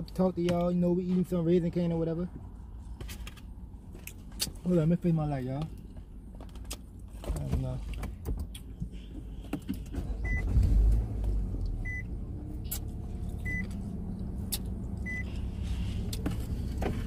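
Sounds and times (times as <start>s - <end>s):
running car rumble: 0.0s - 17.0s
car warning chime beeping: 10.2s - 10.6s, 11.8s - 12.2s, 13.4s - 13.8s, 15.0s - 15.4s.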